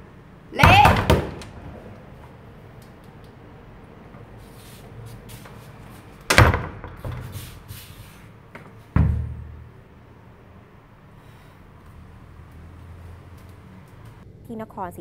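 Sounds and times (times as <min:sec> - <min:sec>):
wooden door slamming: 0:00.6 - 0:02.0, 0:06.3 - 0:07.4, 0:08.9 - 0:09.6.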